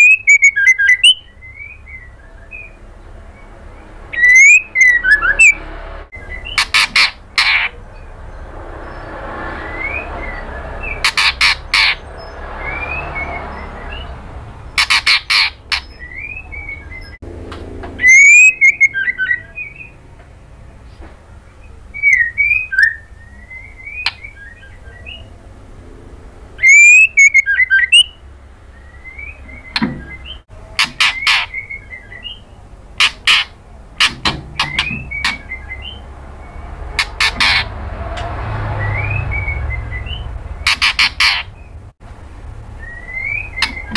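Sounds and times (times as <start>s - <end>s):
bird whistling notes: 0.0s - 5.6s, 9.6s - 12.0s, 18.0s - 20.0s, 26.6s - 32.4s, 33.0s - 37.7s, 38.6s - 41.8s, 42.8s - 43.9s
loud harsh bird calls: 0.0s - 17.2s, 17.9s - 20.0s, 26.6s - 41.9s, 42.7s - 43.9s.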